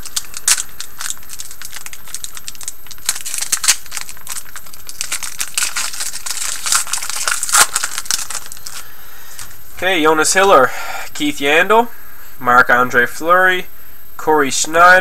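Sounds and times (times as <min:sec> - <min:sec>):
foil wrapper tearing and crinkling: 0:00.0 - 0:09.6.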